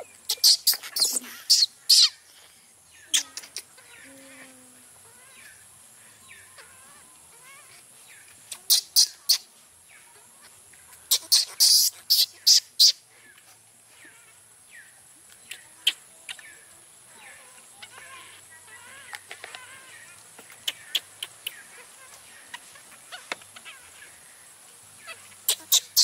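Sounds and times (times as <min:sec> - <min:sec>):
baby monkey screaming: 0:00.3 - 0:02.2, 0:08.6 - 0:09.4, 0:11.1 - 0:13.0, 0:25.0 - 0:26.0.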